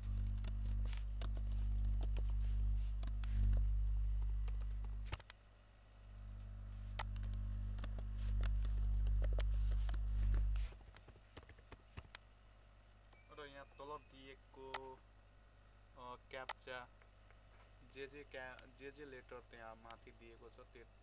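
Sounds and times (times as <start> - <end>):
loud low hum: 0.0 - 5.2, 6.0 - 10.7
keyboard typing: 0.0 - 5.4, 6.9 - 12.2.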